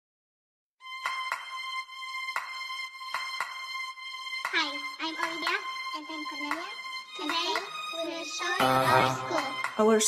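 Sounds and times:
percussive hits: 1.0s - 1.6s
held high music tone: 7.2s - 9.8s.

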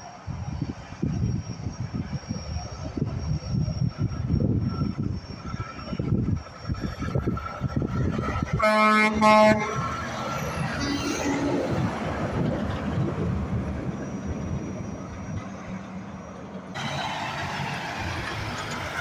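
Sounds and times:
truck driving past: 7.4s - 19.0s
truck air horn blasts: 8.6s - 9.9s.

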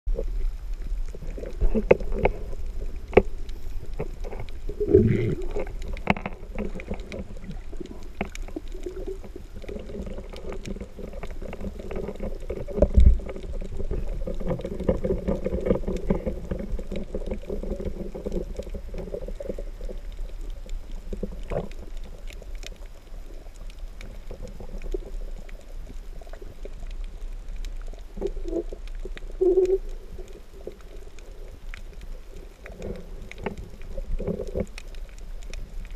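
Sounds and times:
muffled underwater rumble: 0.1s - 35.9s.

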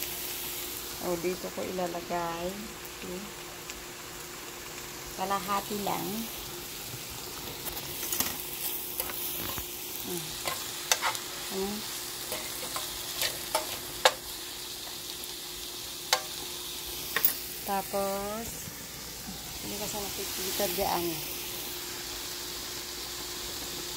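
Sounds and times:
food sizzling in a frying pan: 0.0s - 23.9s
metal fork clicking on pan: 10.4s - 11.2s, 12.3s - 14.2s, 16.1s - 16.4s.

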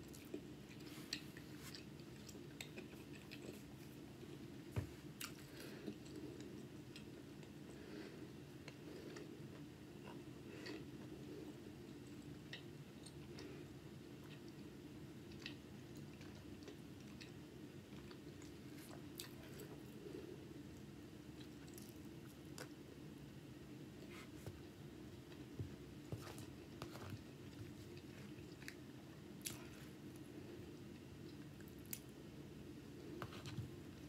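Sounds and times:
close chewing: 0.0s - 3.9s
steady low hum: 0.0s - 34.0s.

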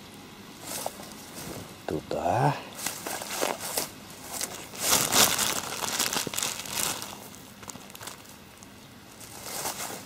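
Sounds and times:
plastic bag crinkling: 2.8s - 10.0s.

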